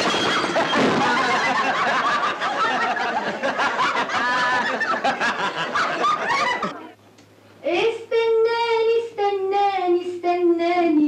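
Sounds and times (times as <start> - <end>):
crowd laughing: 0.0 - 7.0.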